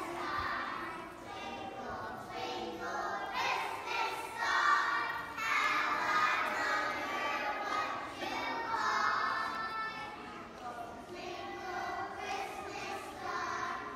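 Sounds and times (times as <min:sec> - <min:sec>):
children singing: 0:00.0 - 0:13.9.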